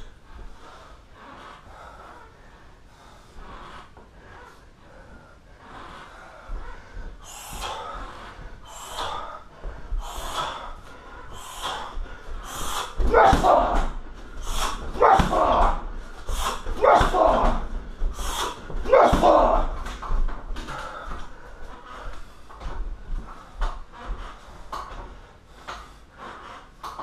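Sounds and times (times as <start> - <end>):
man breathing hard: 0.0 - 27.0.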